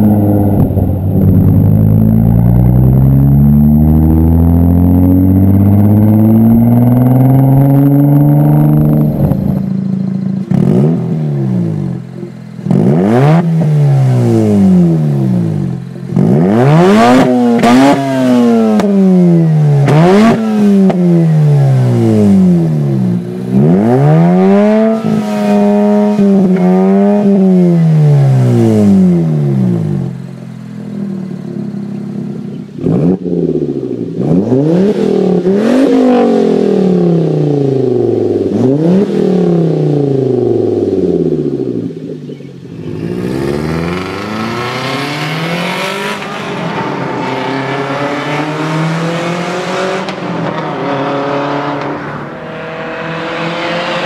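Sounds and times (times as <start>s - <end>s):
rotary engine revving: 0.0s - 29.8s, 42.7s - 54.0s
five-cylinder engine revving: 0.0s - 54.0s.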